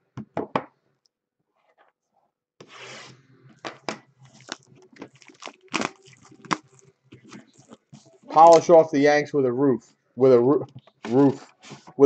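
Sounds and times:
foil wrapper tearing and crinkling: 4.3s - 8.7s.

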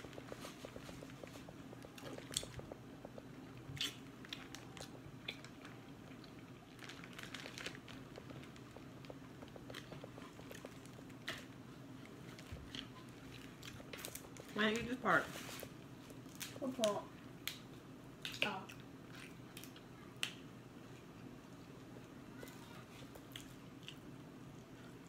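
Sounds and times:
person chewing: 0.0s - 14.5s, 23.0s - 25.0s
faint steady hum: 0.0s - 25.0s.

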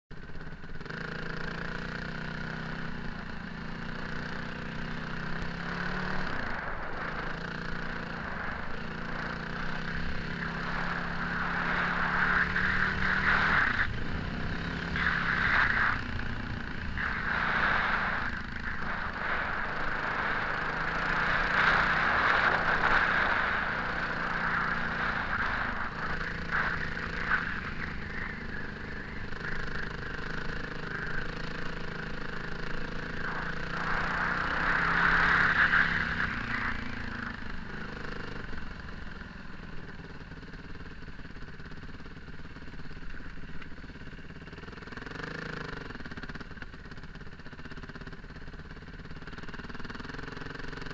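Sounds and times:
motorcycle engine: 0.1s - 50.9s
gravel noise: 0.8s - 39.9s
wind rush: 6.2s - 30.2s.

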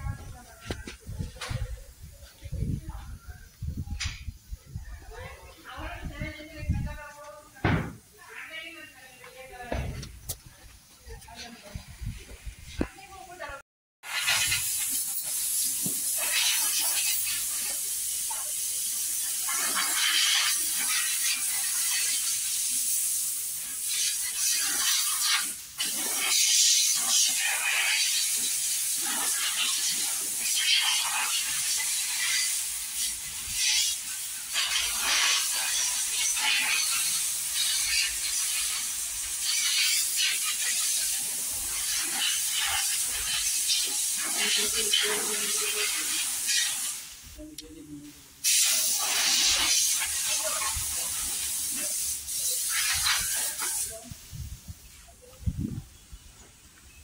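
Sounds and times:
pressure washer spray hissing: 14.0s - 47.5s, 48.4s - 55.0s.

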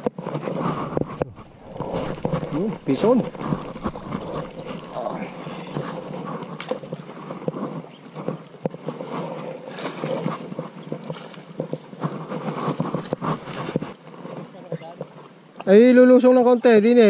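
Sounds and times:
wind on microphone: 0.0s - 15.3s
water noise: 0.0s - 15.7s
gloved hands handling fishing line: 0.5s - 9.2s.

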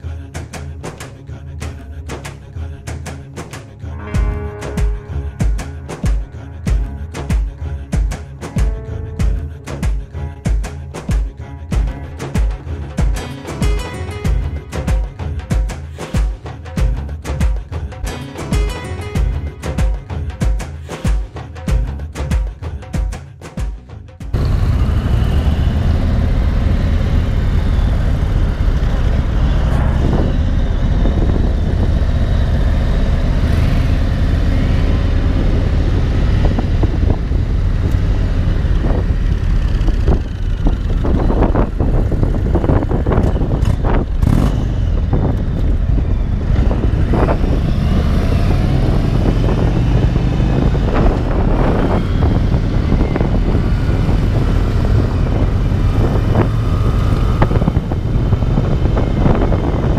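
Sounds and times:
motorcycle engine running: 24.2s - 59.9s
wind noise on microphone: 24.3s - 59.9s.

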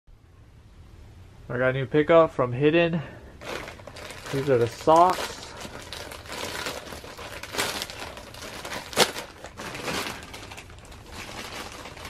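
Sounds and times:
plastic mailer bag crinkling: 3.4s - 12.0s
sharp plastic crackle: 3.4s - 12.0s.

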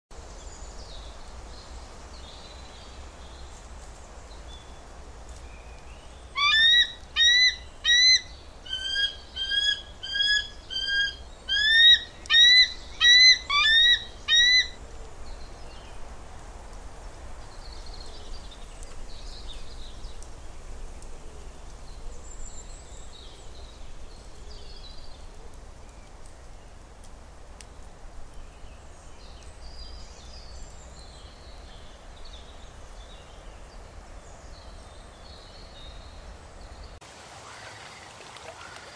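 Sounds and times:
eagle calling: 6.4s - 14.8s.

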